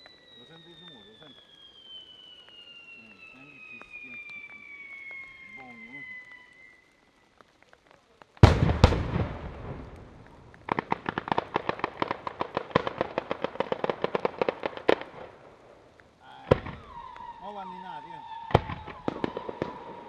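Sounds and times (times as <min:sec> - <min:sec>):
rapid firecracker cracks: 0:00.0 - 0:20.0
loud firework bangs: 0:08.4 - 0:15.6, 0:16.4 - 0:20.0.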